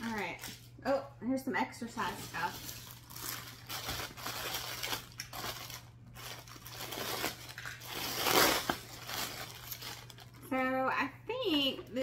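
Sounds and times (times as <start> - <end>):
plastic bag crinkling: 0.0 - 0.7, 2.0 - 10.6.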